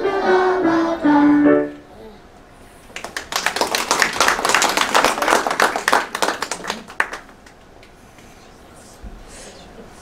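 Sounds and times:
audience applauding: 3.0 - 7.6.

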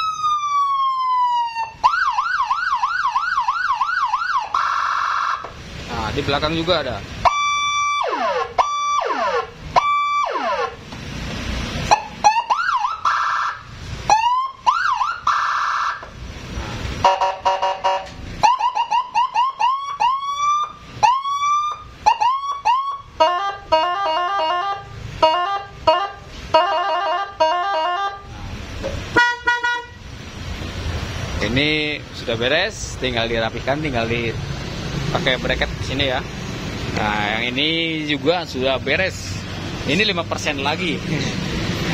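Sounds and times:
electronic siren wails and whoops: 0.0 - 5.5, 7.3 - 10.8, 11.9 - 16.0, 17.2 - 28.2.

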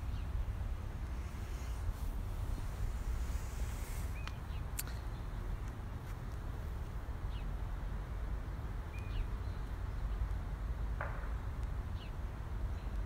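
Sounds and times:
small bird chirping: 3.2 - 5.8, 8.9 - 10.2.

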